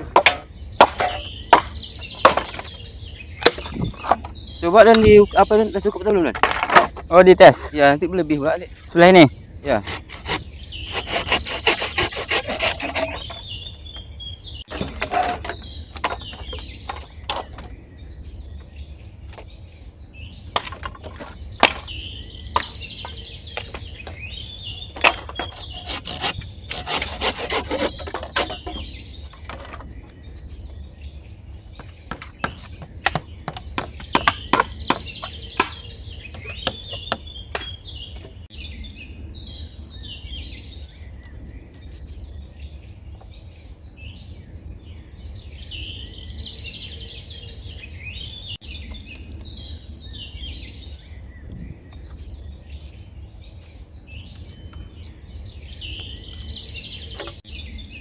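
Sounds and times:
wood knocking and scraping: 0.0s - 2.8s, 3.4s - 5.4s, 6.0s - 7.7s, 9.8s - 13.5s, 14.7s - 17.8s, 20.6s - 21.9s, 25.0s - 30.2s, 31.8s - 38.4s
birds chirping: 0.0s - 58.0s
low wind rumble: 2.7s - 6.3s.

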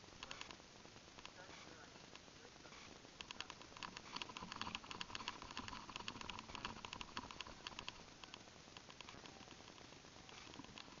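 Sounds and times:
gear clicks and rattles: 2.8s - 11.0s.

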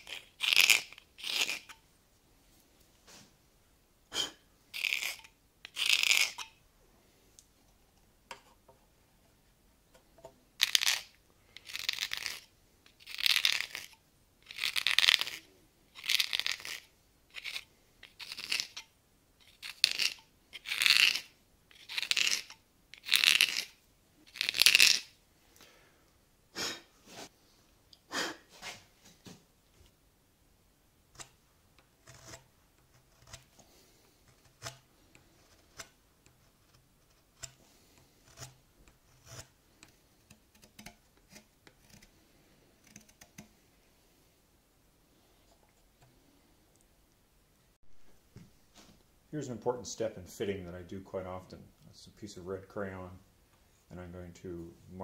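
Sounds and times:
knife slicing wood: 4.2s - 6.5s, 32.0s - 42.1s.

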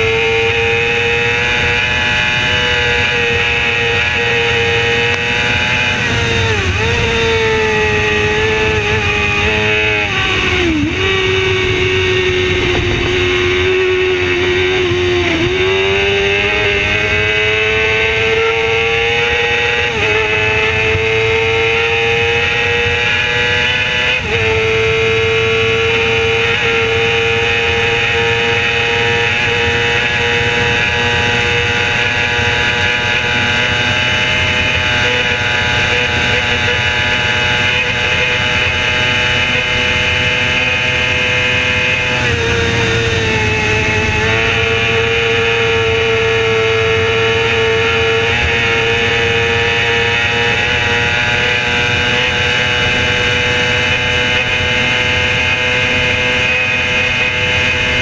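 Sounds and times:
racing motorcycle engine high revs: 0.0s - 58.0s
wind rush: 10.2s - 13.8s, 41.8s - 45.0s.

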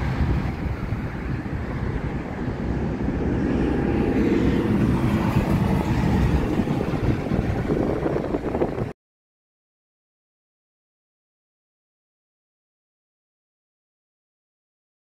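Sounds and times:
truck diesel engine drone: 0.0s - 8.9s.

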